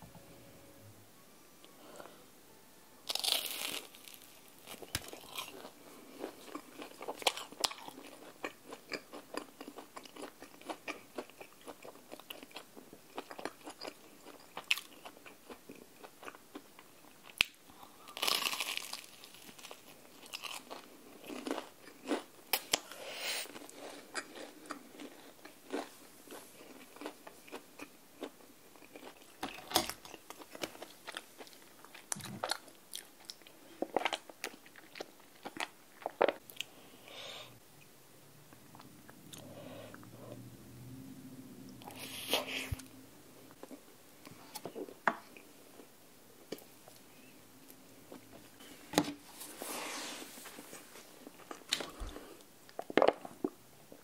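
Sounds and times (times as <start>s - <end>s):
crunchy chewing: 3.1s - 36.7s.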